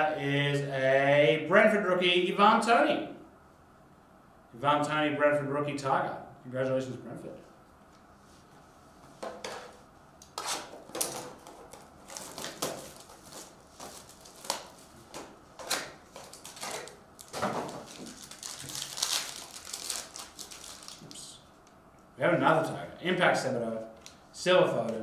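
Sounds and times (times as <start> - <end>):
foil wrapper crinkling and tearing: 10.6 - 21.4.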